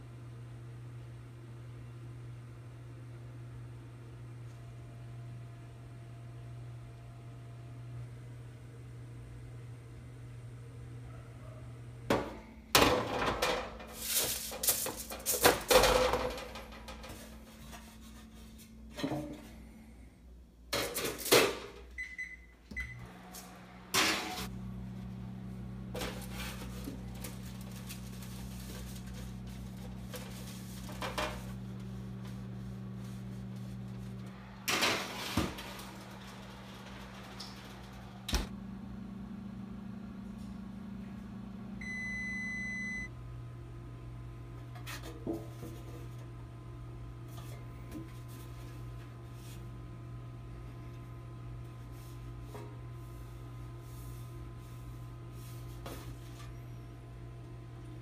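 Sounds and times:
steady low hum: 22.0s - 44.8s.

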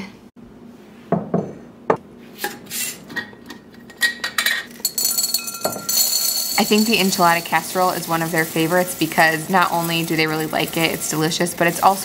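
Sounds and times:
dishes and utensils clinking: 2.4s - 7.6s.

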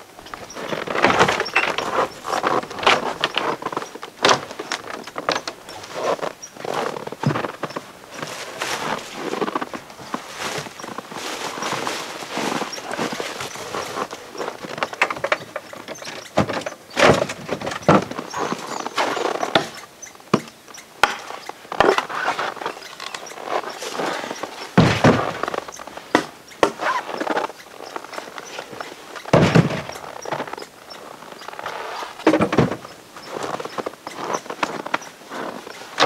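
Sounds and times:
loud rustling: 0.0s - 36.0s
footsteps in packed snow: 0.4s - 15.0s, 18.2s - 19.5s, 21.2s - 26.1s, 32.8s - 36.0s
gear knocking in wooden box: 11.6s - 30.8s.

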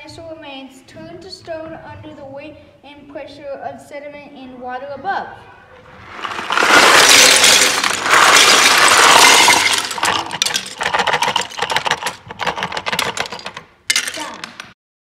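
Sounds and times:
plastic bricks clattering: 6.0s - 14.8s.

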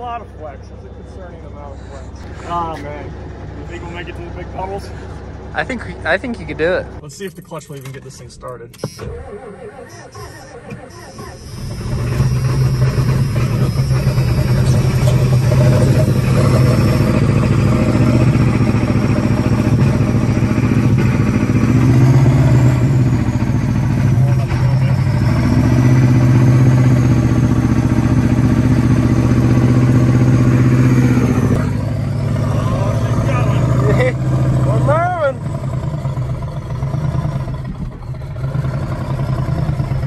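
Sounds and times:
diesel truck engine under load: 0.0s - 40.0s.

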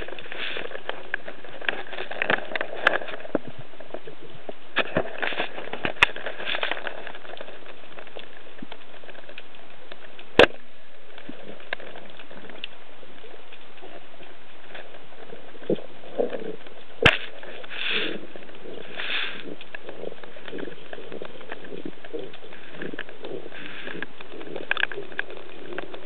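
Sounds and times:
underwater crackles and clicks: 0.0s - 26.0s
underwater hiss: 17.7s - 19.6s.

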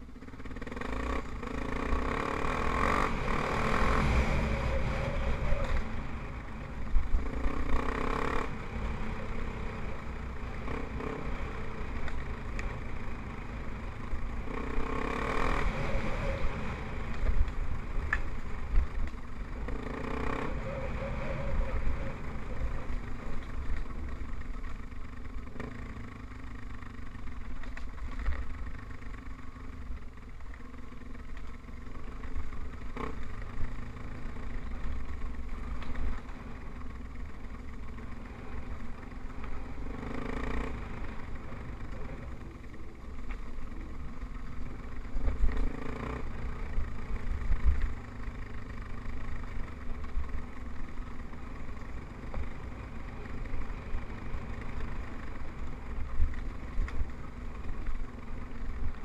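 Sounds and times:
trail bike engine revving in bursts: 0.4s - 6.2s, 7.0s - 18.0s, 19.5s - 23.3s, 32.7s - 35.4s, 38.2s - 42.7s, 44.0s - 50.3s.

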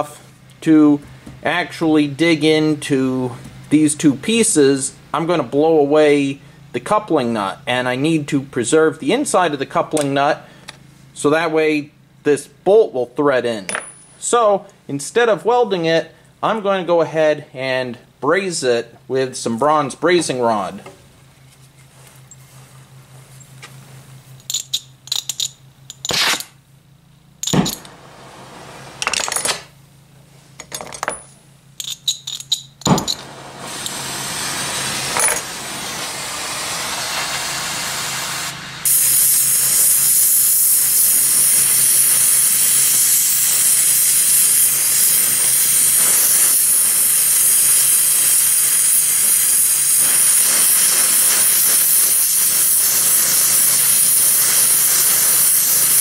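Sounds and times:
sharp clicks and knocks: 27.4s - 27.9s
torch flame hissing: 27.6s - 29.0s, 33.0s - 56.0s.

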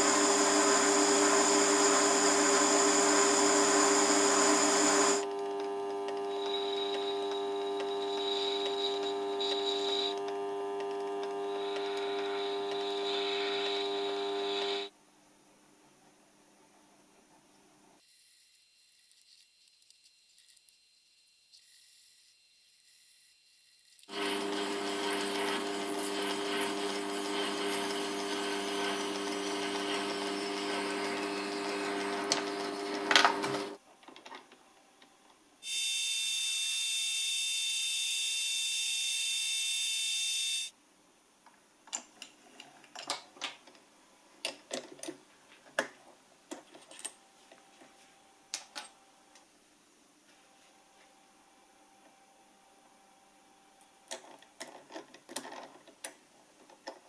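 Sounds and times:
high-pitched whine: 0.0s - 5.2s, 11.0s - 14.9s
lathe motor hum and cutting: 0.0s - 14.9s, 24.1s - 33.8s.

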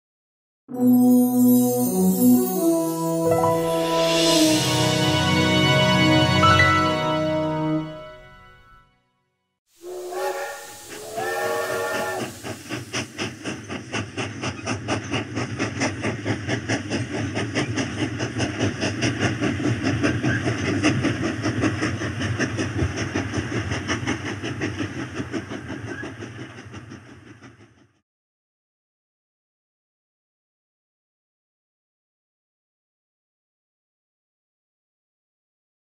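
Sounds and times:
steam locomotive whistle: 9.8s - 12.6s.

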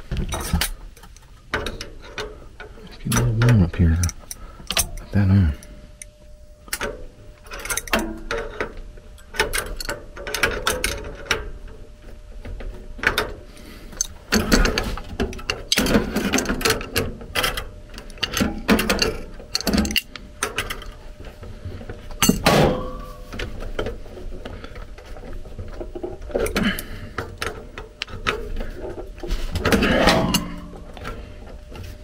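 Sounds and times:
metal wrenches clinking: 14.0s - 21.0s, 29.6s - 31.2s.

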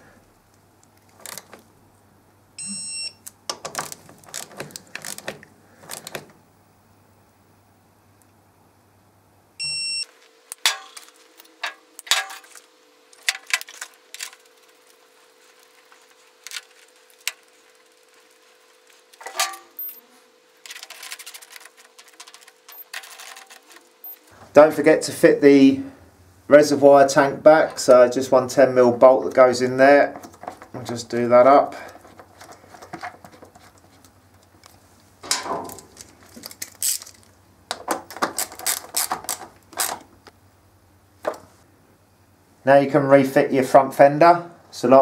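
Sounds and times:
torque wrench beeps: 2.6s - 3.2s, 9.6s - 10.1s, 19.8s - 20.0s, 22.7s - 22.9s, 24.0s - 24.3s
tool handling clicks and knocks: 10.5s - 12.6s, 13.2s - 14.4s, 19.2s - 20.0s, 20.6s - 23.8s, 30.2s - 31.0s.

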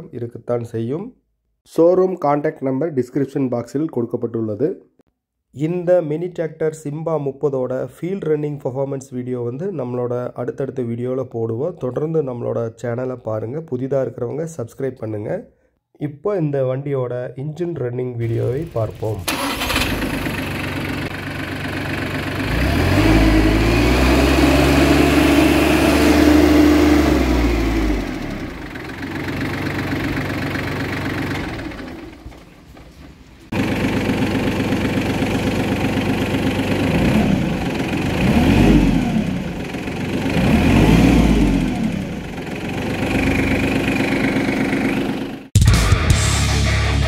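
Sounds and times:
diesel tractor engine revving: 18.3s - 45.5s.

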